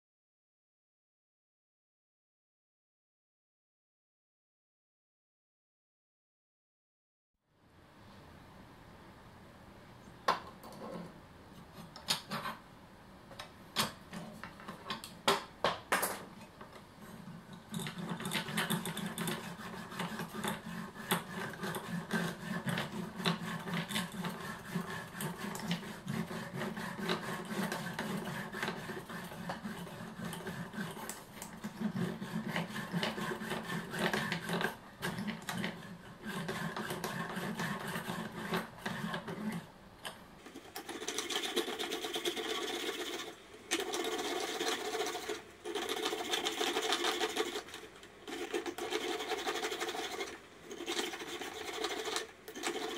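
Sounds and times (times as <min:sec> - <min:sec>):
hacksaw sawing through metal: 0:17.7 - 0:39.7, 0:40.7 - 0:52.9.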